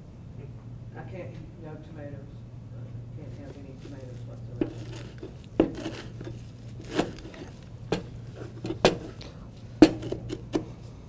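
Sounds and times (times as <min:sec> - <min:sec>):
utensils knocking on board and bowl: 0:03.8 - 0:09.2, 0:09.8 - 0:10.7.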